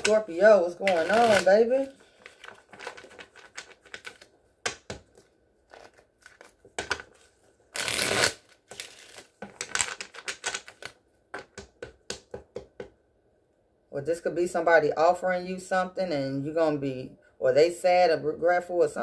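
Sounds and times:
cards being shuffled by hand: 0.0 - 4.3.

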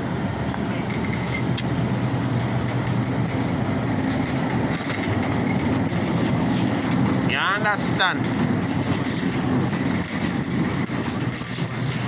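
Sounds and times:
cart clicking and rattling: 2.4 - 12.0
shopping cart wheels rumbling: 3.2 - 12.0.

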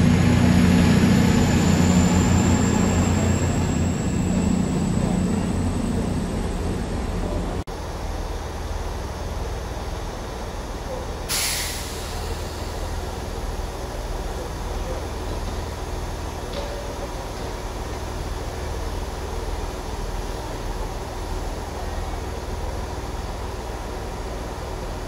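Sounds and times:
diesel train idling: 0.0 - 25.0
compressed air hiss: 11.3 - 12.6.

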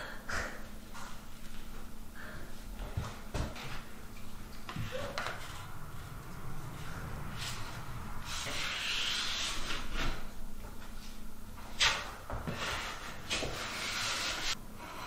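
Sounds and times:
drywall knife scraping compound: 8.3 - 10.3, 11.8 - 15.0.

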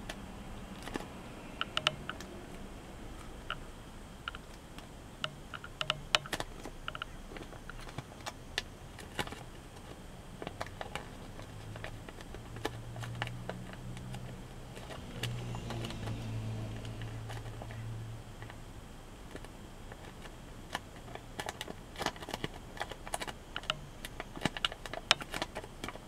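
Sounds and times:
paper crackling and snapping: 0.0 - 1.1, 6.3 - 17.7, 19.3 - 26.0.

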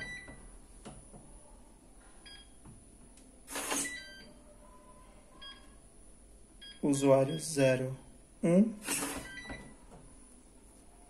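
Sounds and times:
electronic lock beeps: 0.0 - 0.4, 3.5 - 4.4, 8.9 - 9.8.

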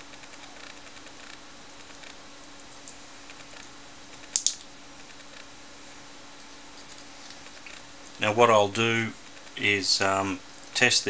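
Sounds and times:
small plastic clicks: 4.2 - 5.5.

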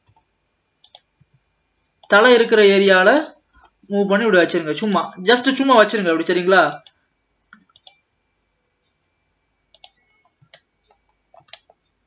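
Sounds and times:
mouse and keyboard clicks: 0.8 - 1.4, 7.6 - 8.0, 9.7 - 10.6, 11.4 - 11.8.

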